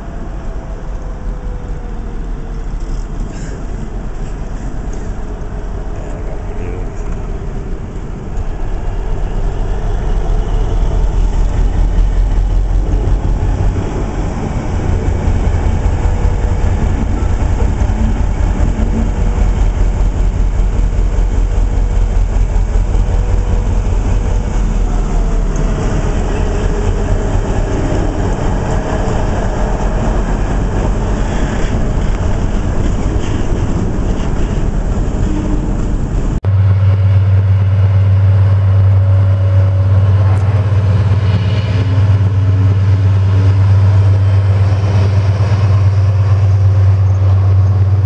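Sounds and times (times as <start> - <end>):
diesel locomotive engine rumble: 0.0 - 48.0.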